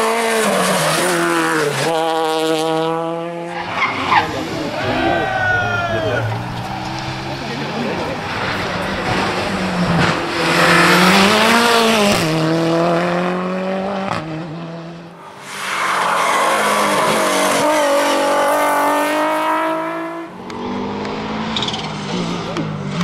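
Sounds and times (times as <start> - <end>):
rally car engine revving: 0.0 - 23.0.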